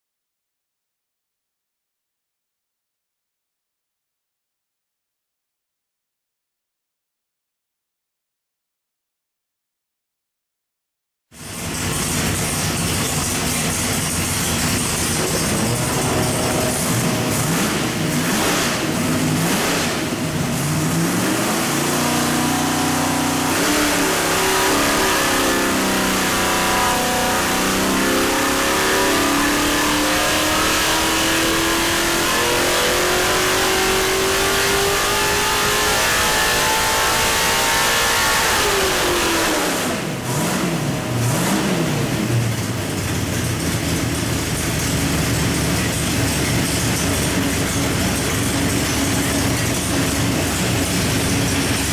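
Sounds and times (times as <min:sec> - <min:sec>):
engine revving on dyno: 0:11.4 - 0:51.9.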